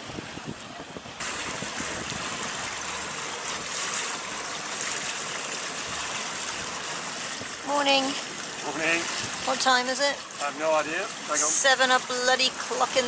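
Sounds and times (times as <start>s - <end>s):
water rushing along hull: 0.0s - 13.0s.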